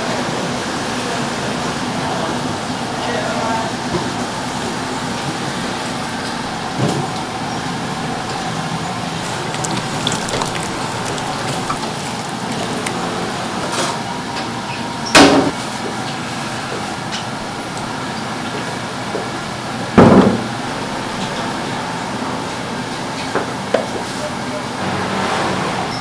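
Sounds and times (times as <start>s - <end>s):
liquid pouring and splashing: 9.2s - 13.4s.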